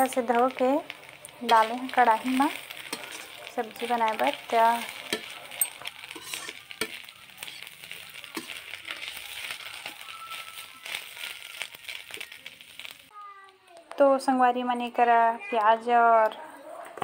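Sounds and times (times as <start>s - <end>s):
vegetables sizzling in oil: 0.0s - 13.6s
metal spatula scraping pan: 1.4s - 10.0s.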